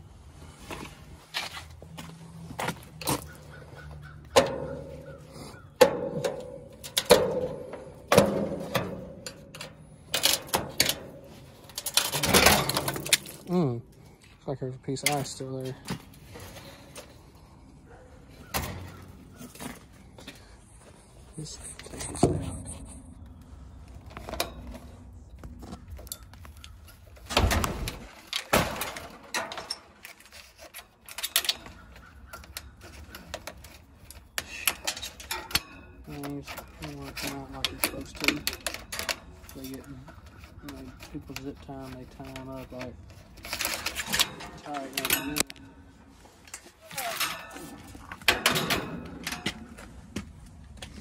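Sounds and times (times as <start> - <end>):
metal clanks and knocks: 2.6 - 13.5, 15.0 - 20.0, 24.1 - 45.9, 46.5 - 50.2
rattling metal clatter: 2.9 - 13.6, 24.1 - 49.9.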